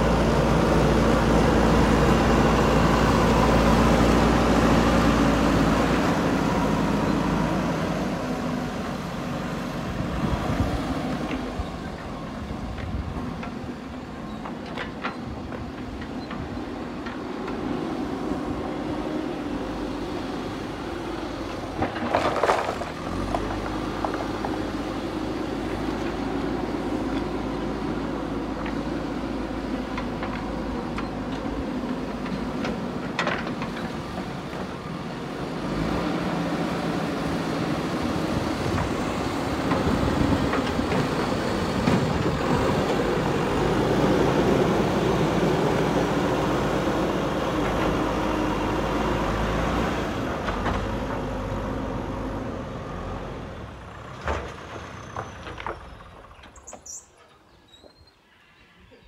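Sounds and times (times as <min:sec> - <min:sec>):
diesel engine running: 0:00.0 - 0:56.6.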